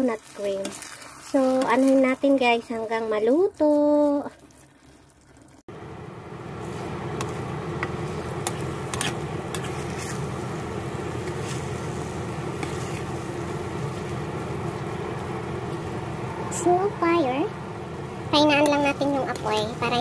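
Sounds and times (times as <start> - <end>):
rice sizzling in a pan: 0.0 - 4.8, 5.7 - 20.0
spatula scraping a pan: 6.6 - 10.6, 11.2 - 13.3.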